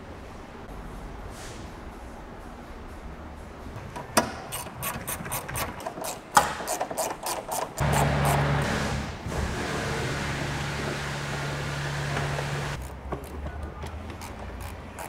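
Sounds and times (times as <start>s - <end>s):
ratchet wrench clicking: 4.5s - 8.4s, 12.8s - 15.0s.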